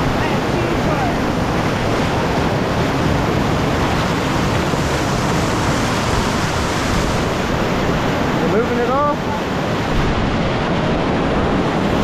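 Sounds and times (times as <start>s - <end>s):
whitewater rushing: 0.0s - 12.0s.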